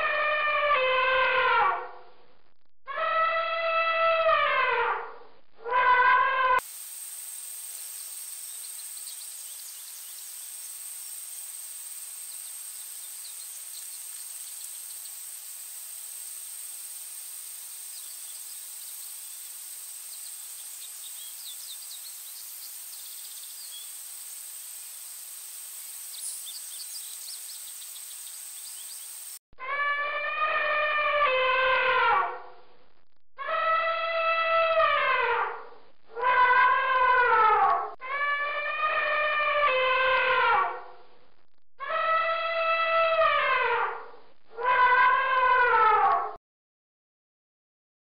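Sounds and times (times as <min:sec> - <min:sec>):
steady hiss: 0:06.6 - 0:29.4.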